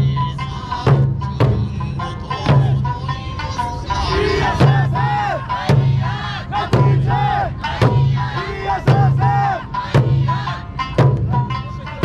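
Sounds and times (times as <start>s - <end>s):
accompanying music: 0.0s - 12.0s
performers shouting calls: 2.2s - 10.8s
large barrel drums struck: 4.5s - 11.6s.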